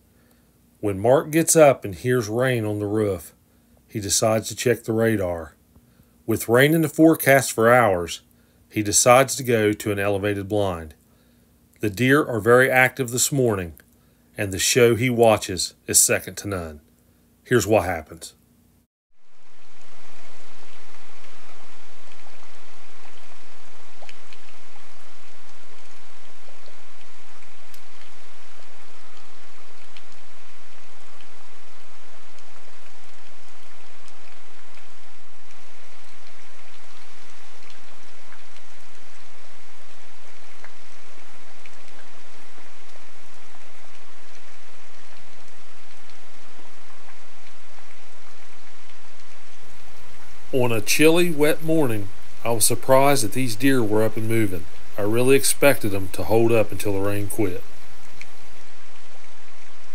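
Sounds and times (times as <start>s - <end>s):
steady rain falling: 0.0s - 59.9s
raindrops ticking: 19.4s - 59.9s.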